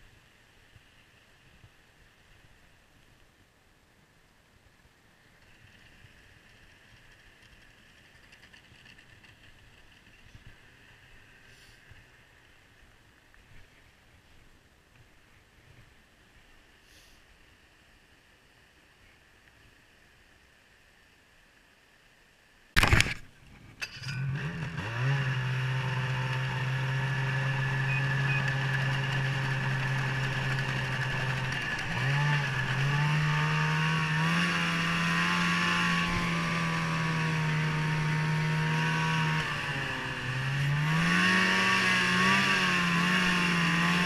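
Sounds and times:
snowmobile engine revving: 0:24.0 - 0:44.0.

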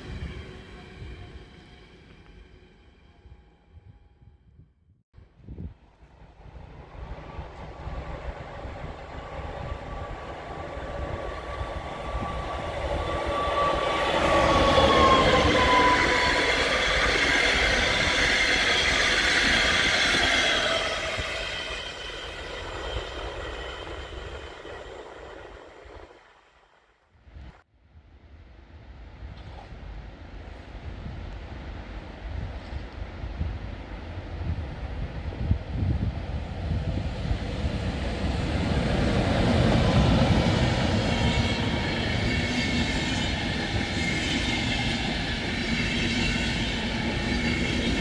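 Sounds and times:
train passing: 0:00.0 - 0:04.1, 0:05.9 - 0:26.8, 0:28.3 - 0:48.0
locomotive whine: 0:06.1 - 0:26.2, 0:36.7 - 0:48.0.

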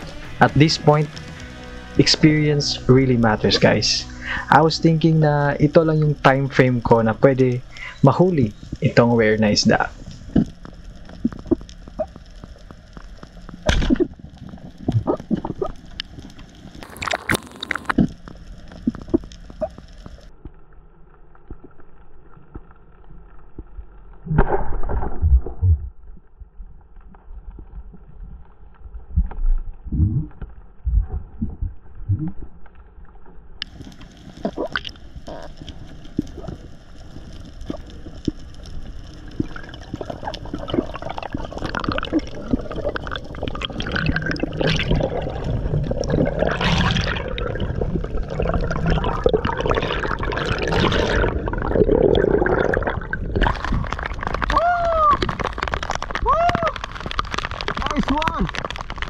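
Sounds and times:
underwater water sloshing: 0:33.2 - 0:54.5
rush of water: 0:39.2 - 0:59.0.

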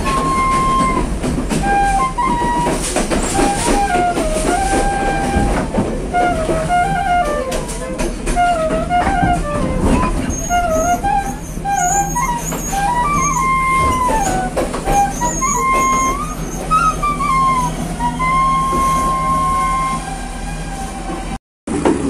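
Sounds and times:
sharp clacks and rattles: 0:00.0 - 0:18.0
wooden flute melody: 0:00.0 - 0:21.4
train carriage rumble: 0:00.0 - 0:22.0.

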